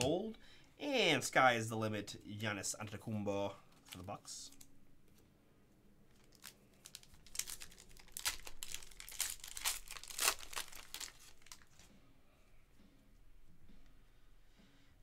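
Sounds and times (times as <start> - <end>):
foil wrapper crinkling: 6.1 - 11.8.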